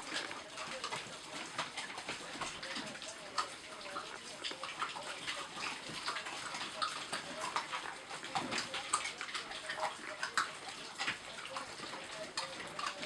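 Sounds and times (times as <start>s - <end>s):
puppies chewing raw meat: 0.0s - 13.0s.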